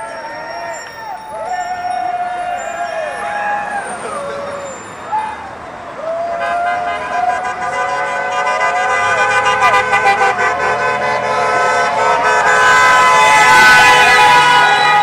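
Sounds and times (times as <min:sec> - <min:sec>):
car horns honking: 0:06.3 - 0:15.0.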